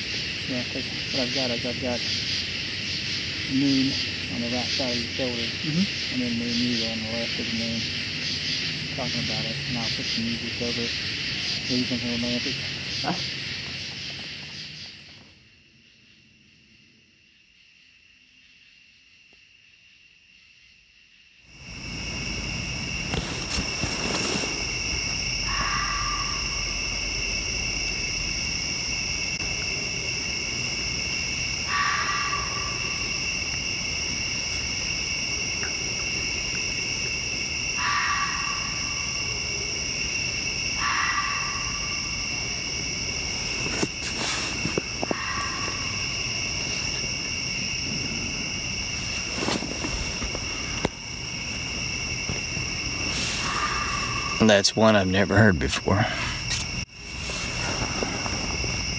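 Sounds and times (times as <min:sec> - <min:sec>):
insect chorus trilling: 0:00.0 - 0:58.9
short animal calls: 0:25.4 - 0:26.6, 0:40.8 - 0:42.0, 0:45.1 - 0:46.0.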